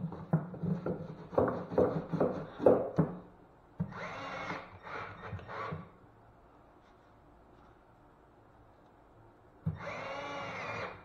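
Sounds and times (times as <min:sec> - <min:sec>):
wood knocking: 0:00.0 - 0:03.2
cordless drill driving a screw: 0:03.9 - 0:05.8, 0:09.8 - 0:11.0.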